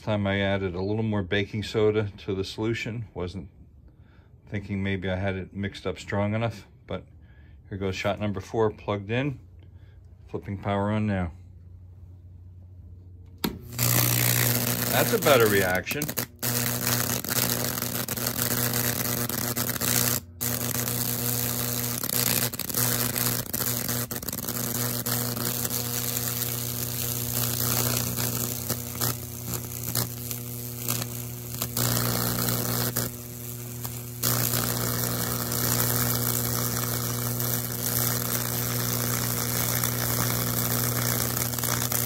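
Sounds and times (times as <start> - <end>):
electric arc crackling sizzle: 13.4 - 42.0
transformer humming: 13.4 - 42.0.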